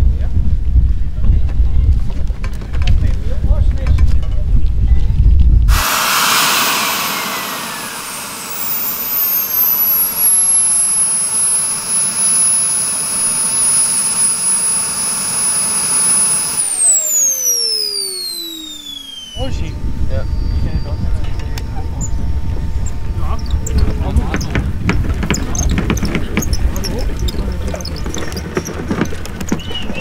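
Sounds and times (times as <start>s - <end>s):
model jet turbine whine: 5.7s - 30.0s.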